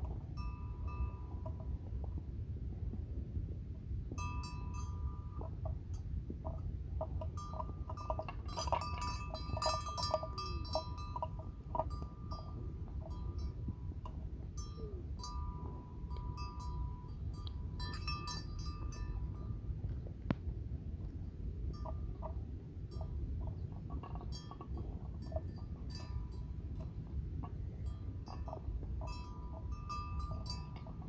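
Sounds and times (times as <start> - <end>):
bells clinking and ringing: 0.0 - 1.9, 4.2 - 19.8, 21.6 - 31.0.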